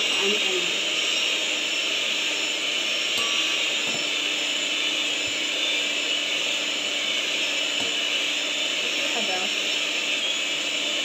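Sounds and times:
electric hand mixer whipping: 0.0s - 11.0s.

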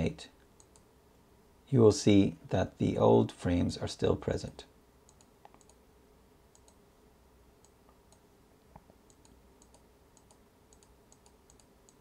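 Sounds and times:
faint room hum: 0.0s - 12.0s
computer clicks: 0.5s - 0.9s, 5.1s - 5.8s, 6.5s - 6.8s, 9.1s - 12.0s.

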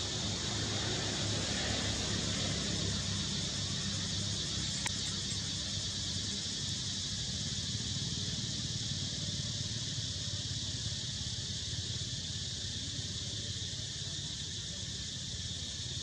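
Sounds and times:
insects droning in trees: 0.0s - 16.0s
faint click: 4.8s - 5.4s.

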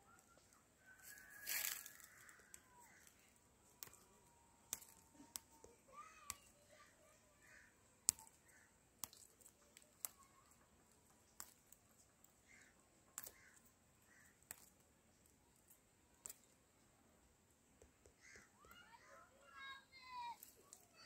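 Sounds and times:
coffee cherries snapped off stems: 1.0s - 5.7s, 7.5s - 10.3s, 11.3s - 11.8s, 12.5s - 14.8s.

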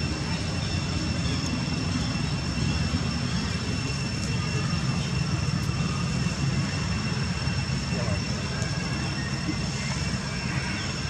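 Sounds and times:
low outdoor background rumble: 0.0s - 11.0s.

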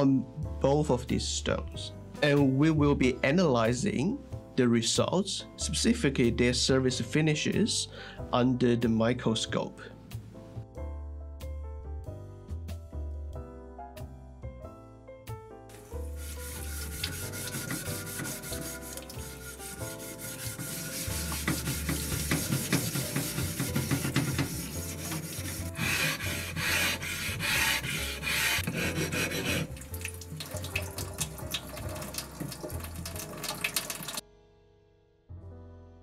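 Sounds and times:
background music: 0.0s - 36.0s
plate scraping on whetstone: 16.1s - 29.7s.

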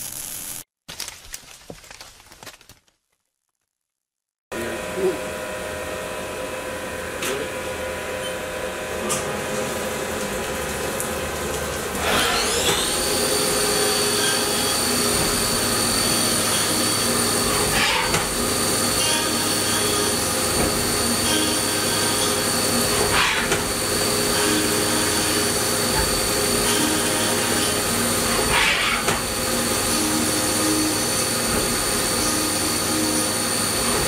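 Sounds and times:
machine hum: 4.6s - 34.0s
spindle whine: 12.3s - 34.0s.

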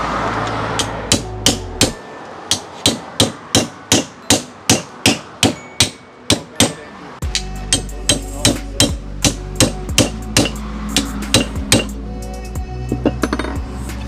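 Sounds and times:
hammer striking machete: 0.8s - 12.0s.

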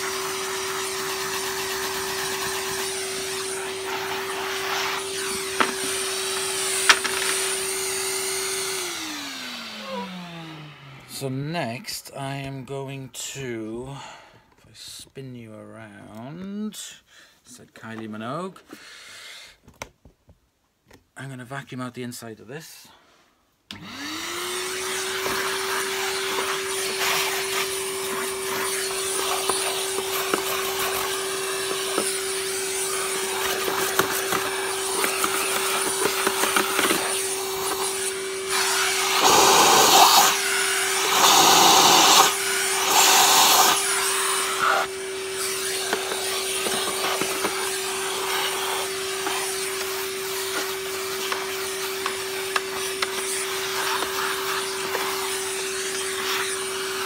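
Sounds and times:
vacuum cleaner running: 0.0s - 11.6s, 23.7s - 57.0s.

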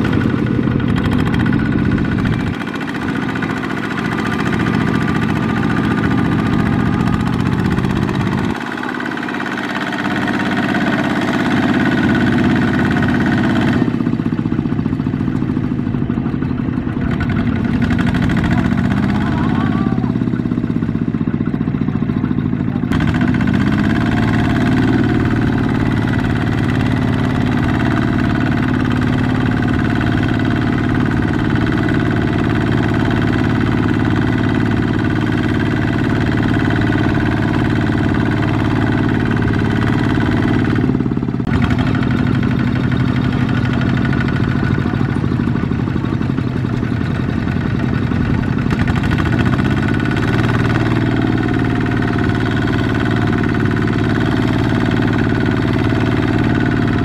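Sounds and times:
diesel engine running: 0.0s - 57.0s
wheels churning through mud: 0.0s - 57.0s.

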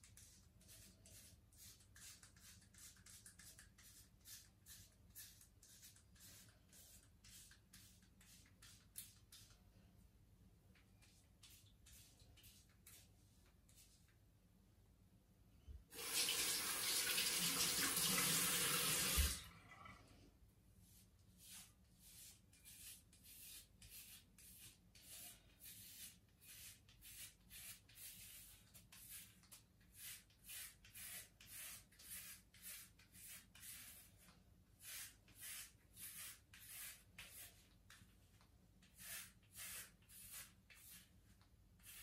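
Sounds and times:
razor scraping scalp: 39.0s - 41.1s.

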